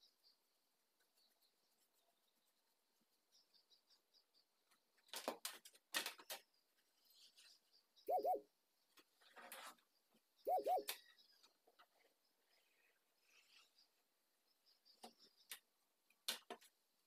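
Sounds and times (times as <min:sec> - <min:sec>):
dove cooing: 0:08.1 - 0:08.4, 0:10.5 - 0:11.0.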